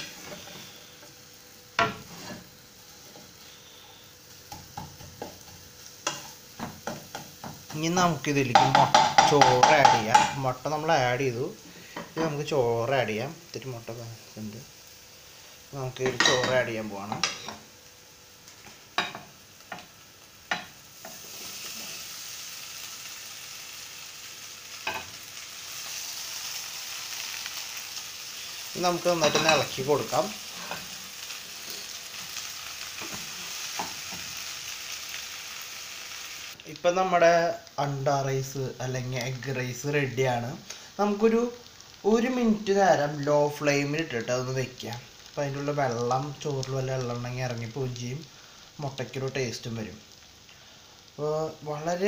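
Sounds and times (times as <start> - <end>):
low sizzle: 0.0 - 52.0.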